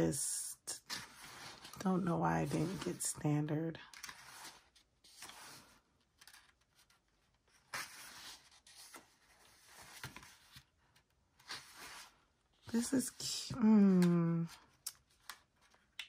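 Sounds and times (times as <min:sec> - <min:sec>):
paper pages turning: 0:03.8 - 0:12.3, 0:13.8 - 0:16.0.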